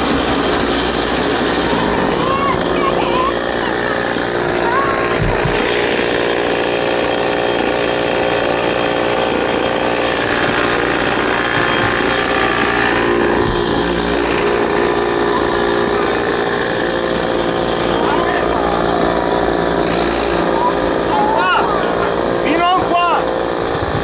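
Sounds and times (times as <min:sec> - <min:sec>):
kart engines idling: 0:00.0 - 0:24.0.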